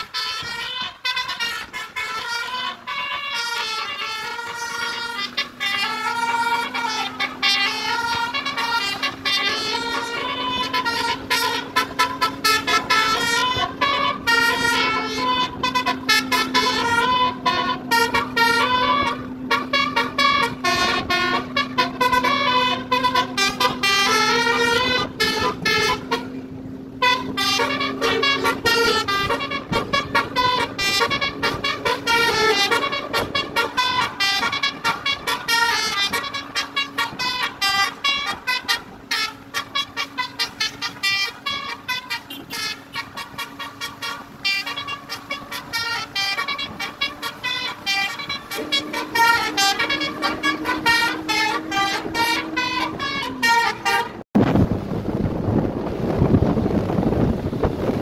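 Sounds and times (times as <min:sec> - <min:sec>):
electric horn playing melody: 0:00.0 - 0:54.3
wind noise: 0:00.0 - 0:58.0.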